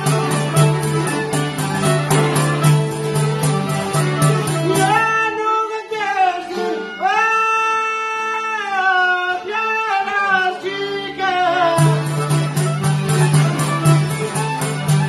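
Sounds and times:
frame drum beat: 0:00.0 - 0:05.2, 0:11.8 - 0:15.0
folk band playing: 0:00.0 - 0:15.0.

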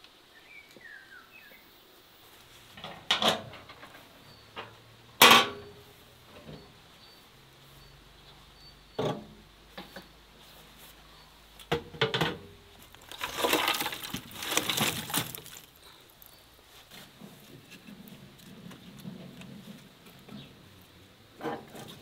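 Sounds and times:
charcoal clattering into grill: 0:02.8 - 0:05.7, 0:11.7 - 0:15.8.

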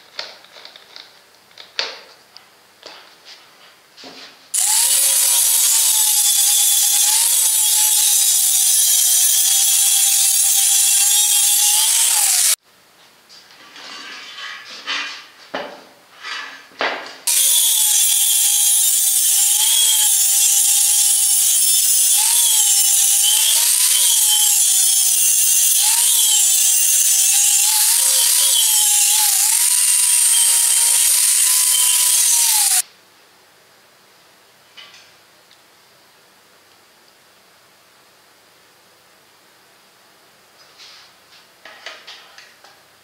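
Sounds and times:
angle grinder grinding metal: 0:04.6 - 0:12.6, 0:17.3 - 0:32.8
scrapes and knocks: 0:13.4 - 0:17.2.

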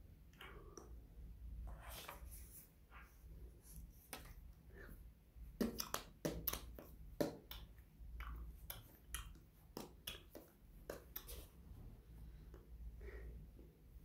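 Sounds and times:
fingers clicking and tapping: 0:05.6 - 0:11.4.

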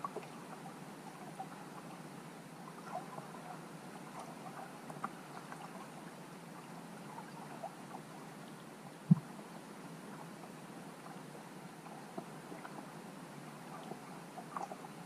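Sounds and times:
faint underwater clicks: 0:02.8 - 0:06.0, 0:06.6 - 0:09.4, 0:13.6 - 0:15.0.

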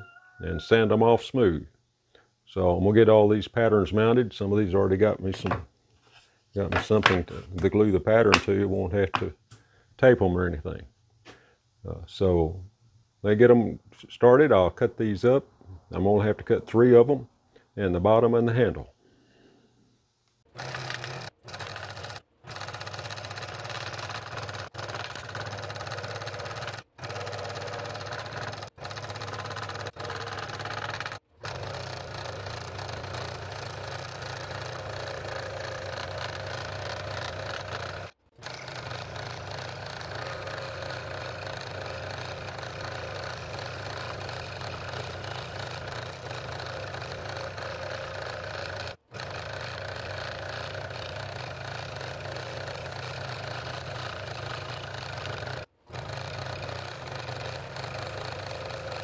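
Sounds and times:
scroll saw cutting wood: 0:05.0 - 0:07.6, 0:20.5 - 0:59.0.

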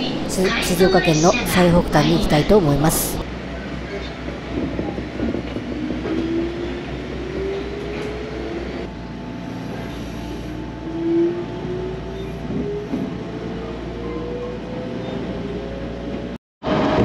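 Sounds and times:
train car rumble: 0:00.0 - 0:17.0
train motor whine: 0:04.5 - 0:16.3.

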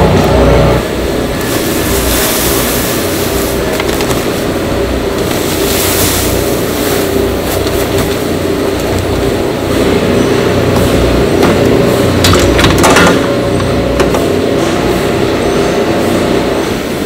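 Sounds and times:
factory machinery noise: 0:00.0 - 0:17.0
loud low machine hum: 0:00.0 - 0:17.0
seeds pouring into metal bin: 0:01.4 - 0:08.0.

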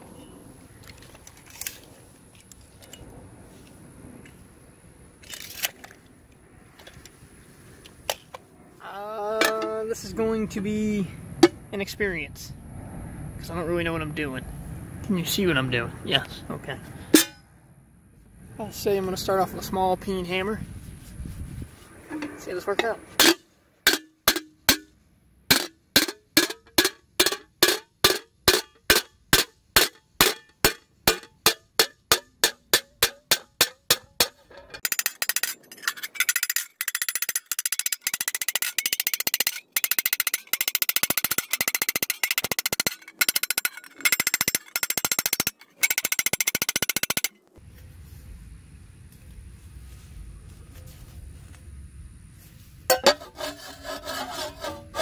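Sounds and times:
hammer beating metal disc: 0:17.2 - 0:17.4, 0:23.2 - 0:47.3, 0:52.9 - 0:53.4.

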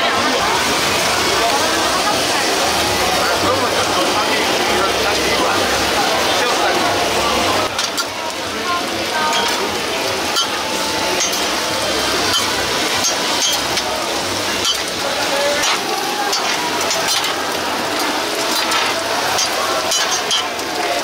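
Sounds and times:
food sizzling on a griddle: 0:00.1 - 0:21.0
metal spatulas scraping griddle: 0:09.3 - 0:09.6, 0:10.3 - 0:10.6, 0:12.2 - 0:13.9, 0:14.5 - 0:20.6.

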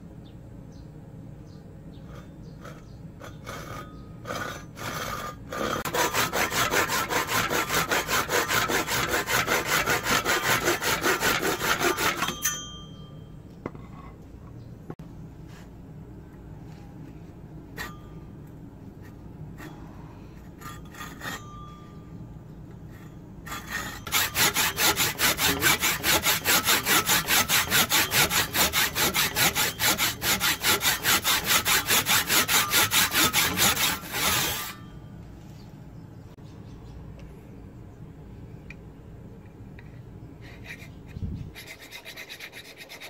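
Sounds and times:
hand saw cutting wood: 0:02.6 - 0:12.4, 0:23.5 - 0:34.9, 0:41.6 - 0:43.0.

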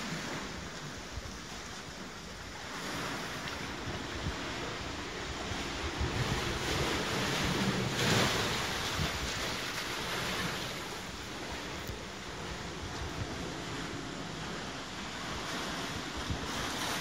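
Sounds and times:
sea waves washing on shore: 0:00.0 - 0:17.0
wind buffeting microphone: 0:00.0 - 0:17.0.

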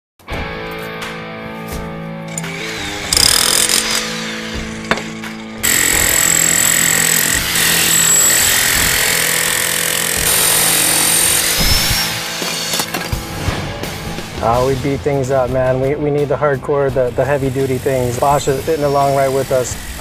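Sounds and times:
demolition hammer hammering: 0:04.7 - 0:13.3.

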